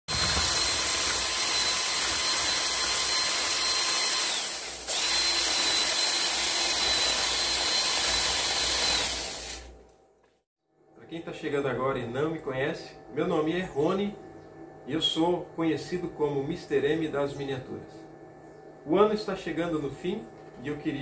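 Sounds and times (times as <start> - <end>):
small electric motor whirring: 0.1 - 9.8.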